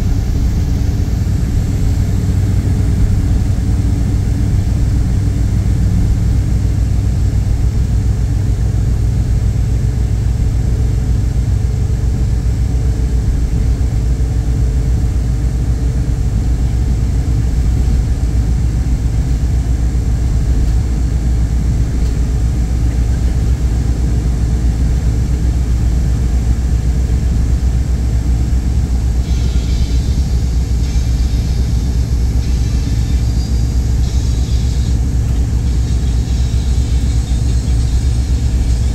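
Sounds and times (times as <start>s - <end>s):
vehicle rumble from inside: 0.0s - 38.9s
high hiss: 29.2s - 38.9s.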